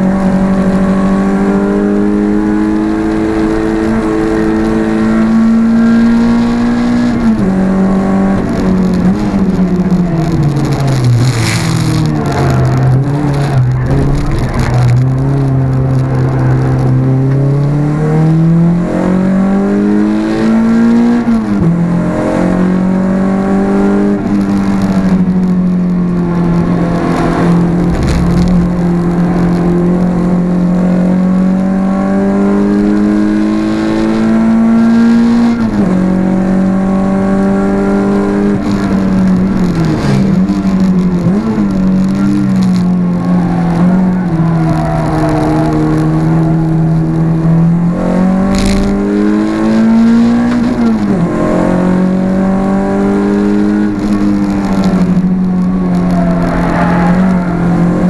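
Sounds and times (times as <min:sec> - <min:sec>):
car engine accelerating hard: 0:00.0 - 0:58.0.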